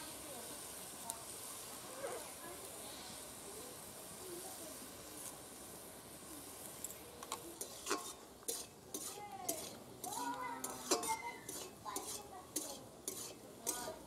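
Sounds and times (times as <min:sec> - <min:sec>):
cabbage sizzling in a pan: 0:00.0 - 0:14.0
metal spatula scraping a pan: 0:07.5 - 0:14.0
spatula clinking against steel: 0:07.6 - 0:14.0.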